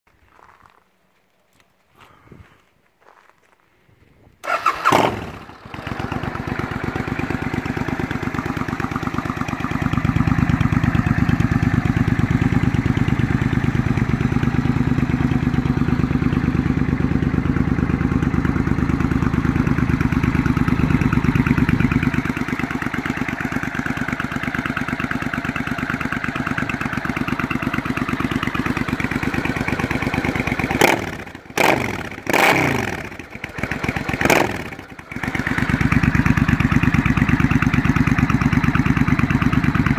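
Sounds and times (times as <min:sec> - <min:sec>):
motorcycle engine idling and revving: 0:04.4 - 0:39.9.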